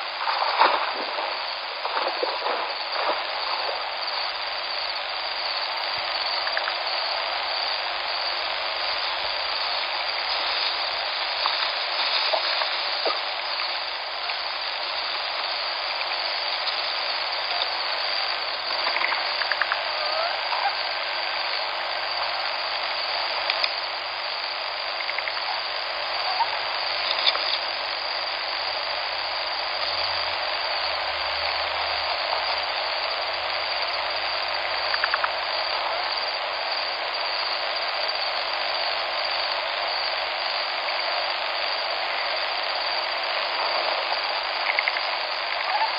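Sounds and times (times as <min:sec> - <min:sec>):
flowing river water: 0:00.0 - 0:45.9
faint clicks: 0:23.4 - 0:23.8.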